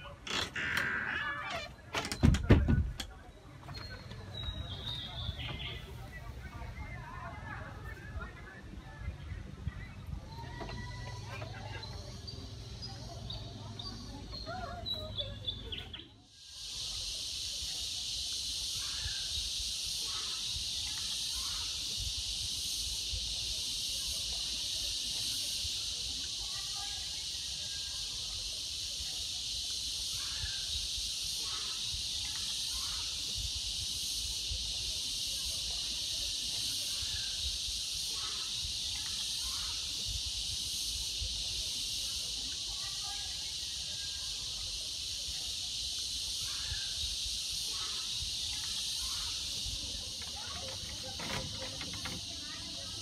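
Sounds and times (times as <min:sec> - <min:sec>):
constant high hiss: 0:00.0 - 0:53.0
faint distant chirps: 0:00.8 - 0:16.3.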